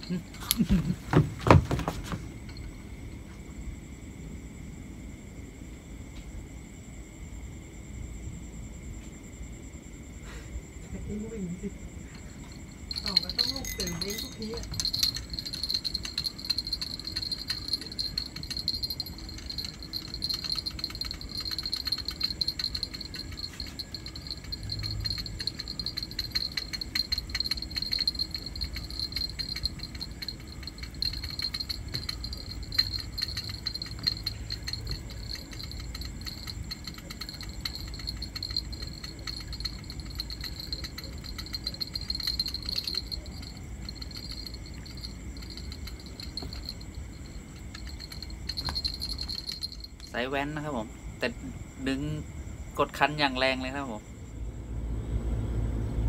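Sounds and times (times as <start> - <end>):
crickets trilling: 0.0 - 56.0
fast rattle of clicks: 12.1 - 50.2.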